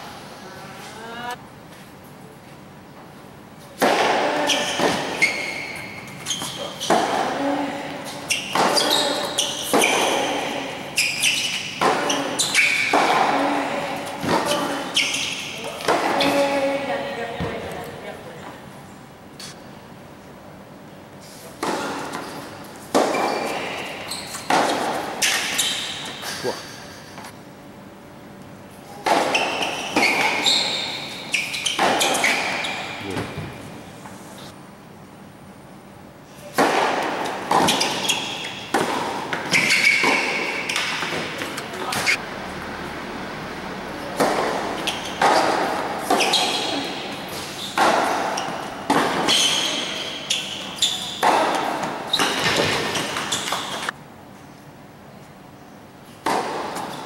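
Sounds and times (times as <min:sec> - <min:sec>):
tennis ball struck by racquet: 0:03.8 - 0:05.2, 0:06.5 - 0:07.4, 0:08.3 - 0:14.8, 0:21.6 - 0:25.6, 0:29.0 - 0:30.5, 0:31.6 - 0:33.6, 0:36.5 - 0:42.2, 0:44.0 - 0:50.4, 0:56.2 - 0:57.0.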